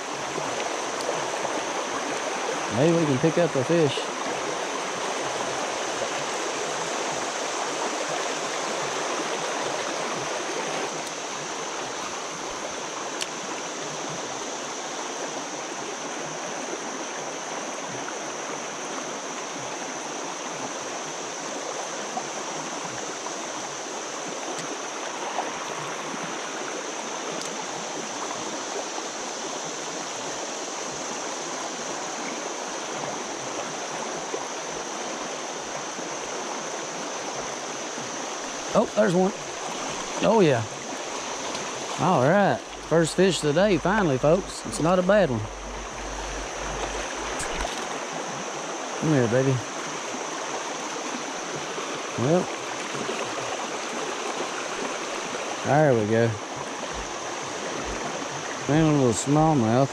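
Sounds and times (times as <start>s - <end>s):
river rushing over rocks: 28.0s - 59.9s.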